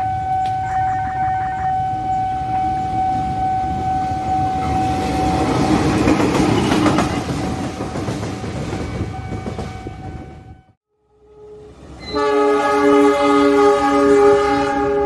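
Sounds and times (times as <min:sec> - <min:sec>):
level crossing alarm tone: 0:00.0 - 0:05.8
train wheels clicking on rail joints: 0:04.7 - 0:10.4.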